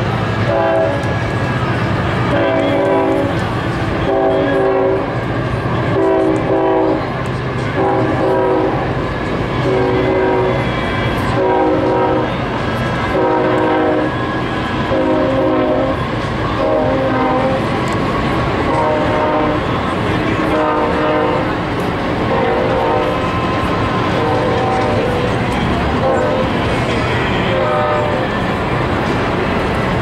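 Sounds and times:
low rumble of passing train: 0:00.0 - 0:30.0
locomotive air horn blasts: 0:00.4 - 0:01.2, 0:02.3 - 0:05.2, 0:05.8 - 0:09.0, 0:09.6 - 0:12.4, 0:13.0 - 0:14.2, 0:14.8 - 0:17.8, 0:18.6 - 0:28.4.

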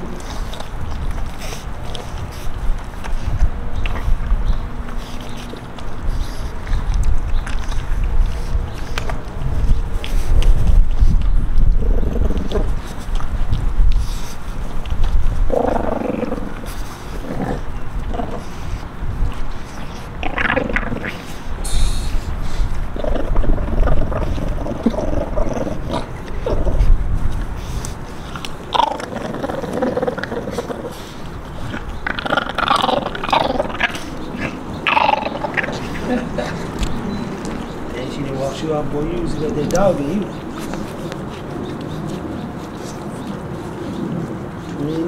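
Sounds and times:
puppies growling low: 0:00.0 - 0:45.0
puppy snarling: 0:11.1 - 0:13.4, 0:14.3 - 0:45.0.

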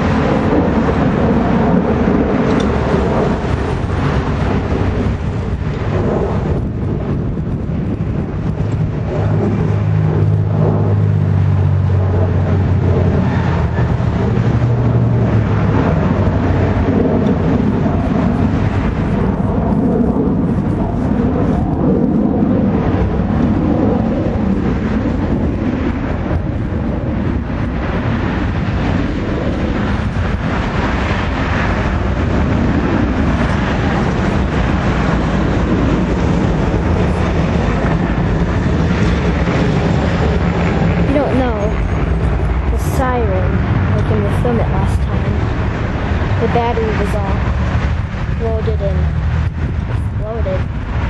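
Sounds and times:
rough droning warning siren: 0:00.0 - 0:51.0.

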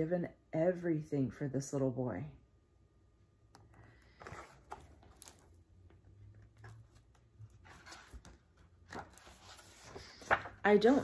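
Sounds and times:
book pages turning: 0:03.8 - 0:11.0.

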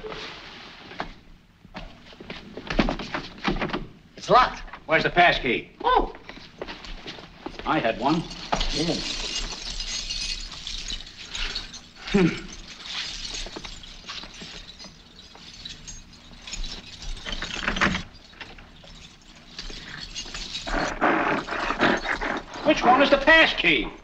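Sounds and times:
metal keys jingling: 0:06.2 - 0:23.3.

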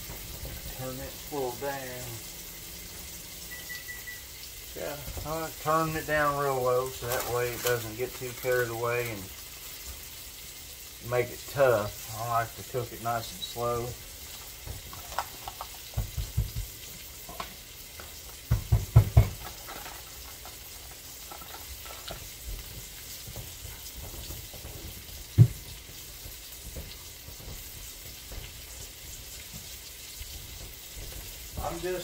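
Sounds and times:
meat sizzling in a pan: 0:00.0 - 0:32.0
dull knocks: 0:18.5 - 0:19.4, 0:24.2 - 0:25.7.

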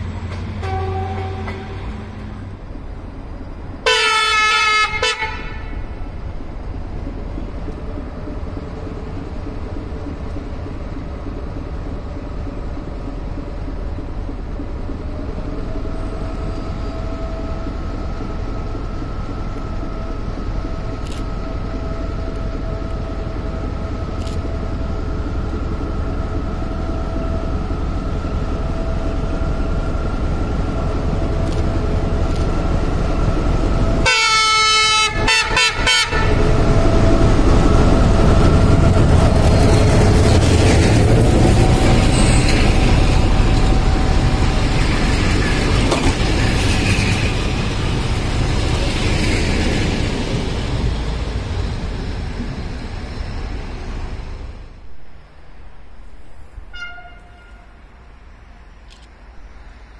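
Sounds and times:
diesel locomotive engine rumble: 0:00.0 - 0:59.9
train wheel noise: 0:00.0 - 0:59.9
train horn blasts: 0:00.6 - 0:02.0, 0:03.8 - 0:05.8, 0:34.0 - 0:36.5, 0:56.6 - 0:58.0.

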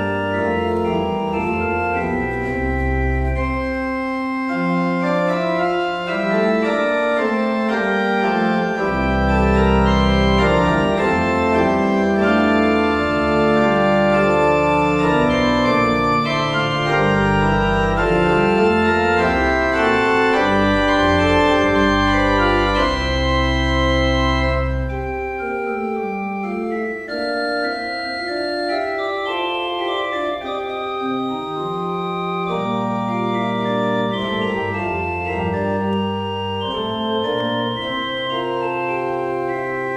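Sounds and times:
church organ playing: 0:00.0 - 0:39.9.

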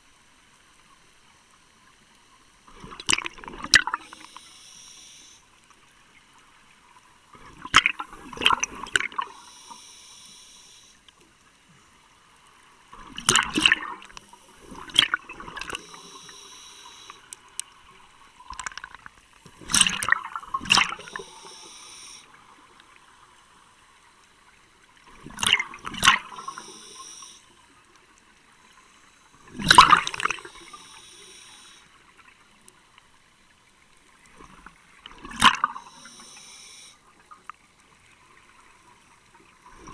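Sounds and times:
exhaled bubbles rushing underwater: 0:02.8 - 0:04.2, 0:07.4 - 0:09.4, 0:12.9 - 0:16.5, 0:18.4 - 0:21.6, 0:25.1 - 0:27.0, 0:29.4 - 0:30.9
scuba regulator hiss: 0:04.0 - 0:05.4, 0:09.3 - 0:11.0, 0:15.7 - 0:17.3, 0:21.0 - 0:22.4, 0:26.3 - 0:27.5, 0:30.2 - 0:31.9, 0:35.8 - 0:37.0.

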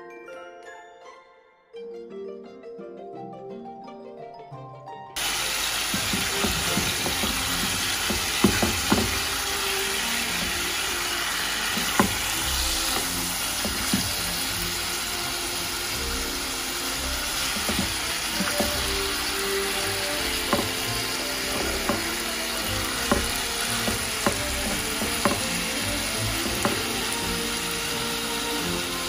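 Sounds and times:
soft background music: 0:00.0 - 0:29.0
chicken sizzling in a frying pan: 0:05.2 - 0:29.0
spatula knocking against pan: 0:05.9 - 0:09.3, 0:11.8 - 0:14.2, 0:17.5 - 0:18.9, 0:20.3 - 0:22.2, 0:22.9 - 0:27.0.

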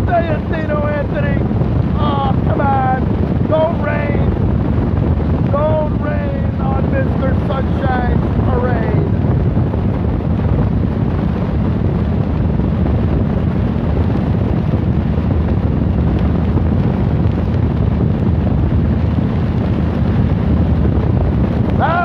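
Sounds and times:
motorcycle engine running: 0:00.0 - 0:22.0
wind rushing on microphone: 0:00.0 - 0:22.0.

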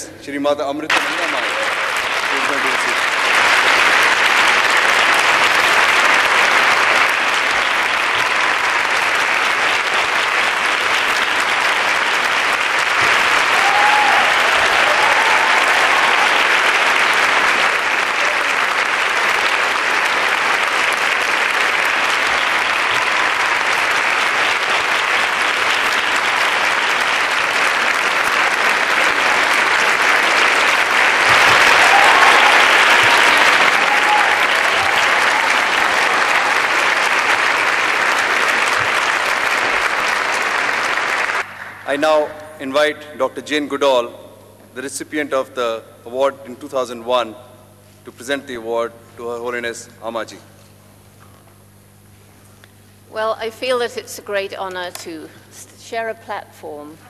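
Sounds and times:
large audience applauding: 0:00.9 - 0:42.4.

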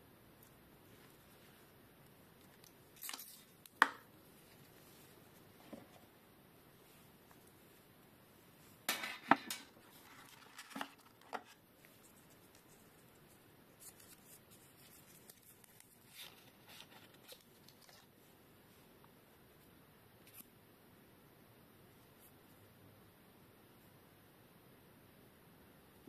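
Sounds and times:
packaging rustling: 0:09.1 - 0:11.6.

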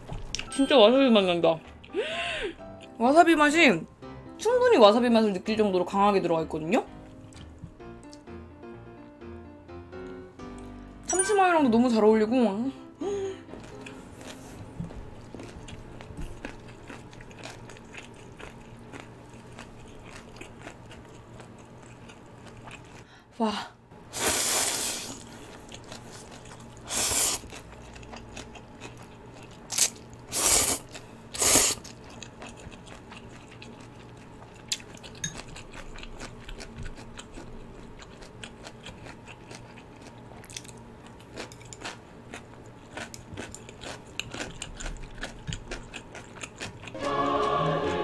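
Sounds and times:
wet chewing: 0:07.1 - 0:08.2, 0:13.5 - 0:23.1, 0:25.2 - 0:47.0.

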